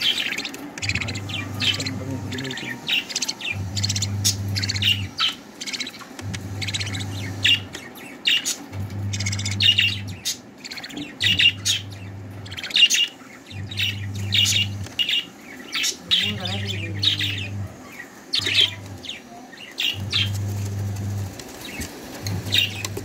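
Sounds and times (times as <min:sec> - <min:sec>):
budgerigars chirping: 0:00.0 - 0:23.0
low hum: 0:00.8 - 0:05.4, 0:06.2 - 0:08.0, 0:08.7 - 0:10.2, 0:10.9 - 0:15.1.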